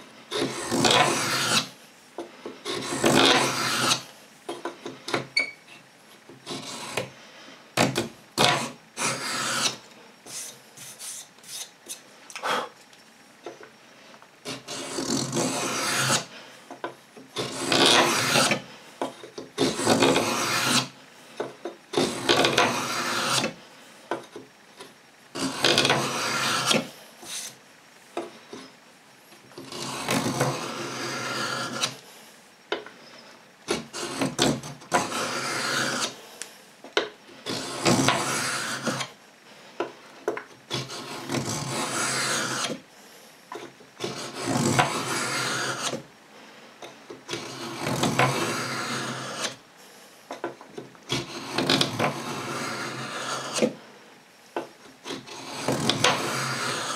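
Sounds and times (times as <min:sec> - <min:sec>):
steel blade scraping wood: 0:00.3 - 0:05.8, 0:06.4 - 0:07.1, 0:07.8 - 0:12.7, 0:14.4 - 0:16.4, 0:17.4 - 0:21.0, 0:21.9 - 0:23.6, 0:25.4 - 0:27.6, 0:29.6 - 0:32.0, 0:33.1 - 0:36.2, 0:37.4 - 0:39.2, 0:40.2 - 0:42.8, 0:43.5 - 0:46.0, 0:47.3 - 0:49.6, 0:51.1 - 0:53.8, 0:55.0 - 0:56.9.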